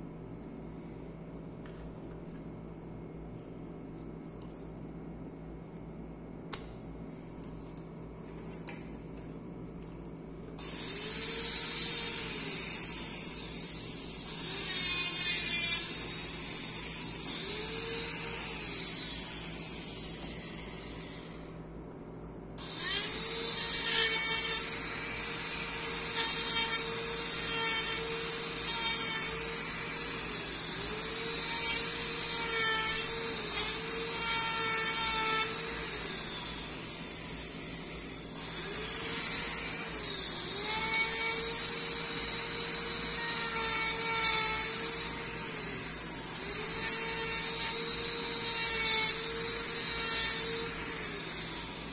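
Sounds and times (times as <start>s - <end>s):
dental handpiece whine: 10.6s - 21.6s, 22.6s - 51.9s.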